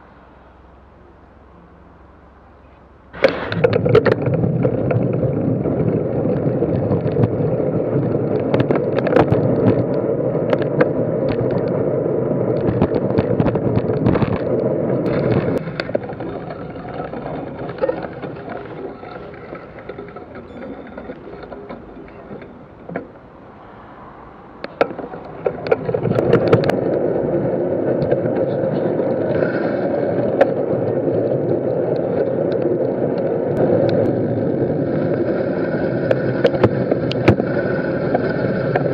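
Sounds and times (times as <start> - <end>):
wind rushing over microphone: 3.4 - 20.2
bicycle rattling and knocking: 12.6 - 23.2.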